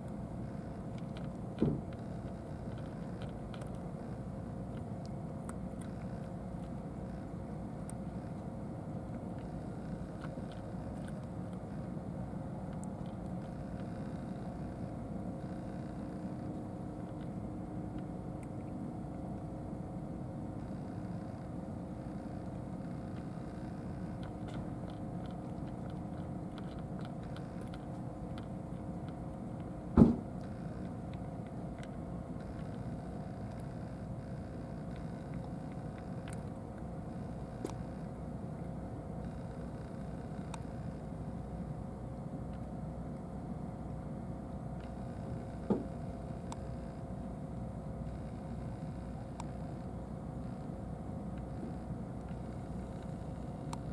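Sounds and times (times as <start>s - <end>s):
cats chewing and crunching: 0.0s - 53.9s
low background rumble: 0.0s - 53.9s
sharp knock: 30.0s - 30.2s.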